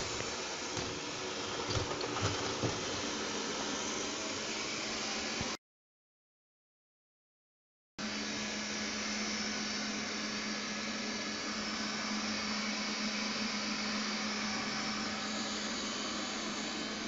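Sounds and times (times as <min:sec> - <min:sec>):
robot vacuum whirring: 0:00.0 - 0:05.5.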